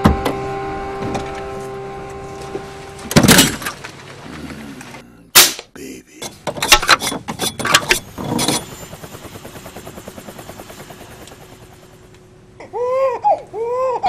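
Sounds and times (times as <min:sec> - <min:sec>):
person crying: 0:12.6 - 0:14.0.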